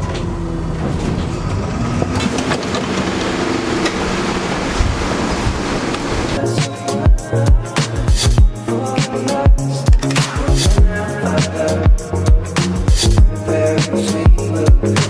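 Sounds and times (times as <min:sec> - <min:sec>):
bus ride rumble: 0:00.0 - 0:06.4
low engine hum: 0:00.0 - 0:06.4
street traffic: 0:00.0 - 0:06.4.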